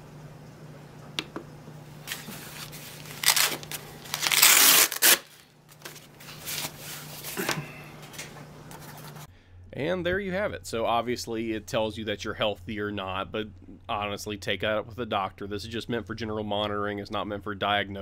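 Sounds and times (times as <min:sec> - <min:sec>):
hook-and-loop fastener ripping: 0:02.1 - 0:06.0.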